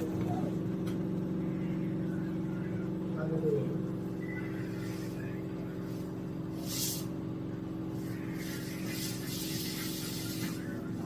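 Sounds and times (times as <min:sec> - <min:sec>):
steady mechanical hum: 0:00.0 - 0:11.0
hiss: 0:06.5 - 0:07.2, 0:08.0 - 0:10.8.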